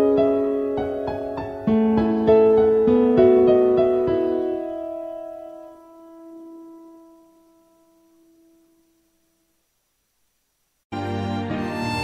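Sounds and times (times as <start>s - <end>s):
piano chord ringing: 0.0s - 9.0s.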